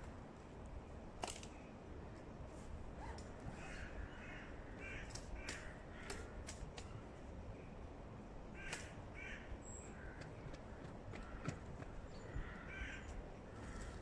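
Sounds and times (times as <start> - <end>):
crows cawing: 3.6 - 6.4, 8.5 - 14.0.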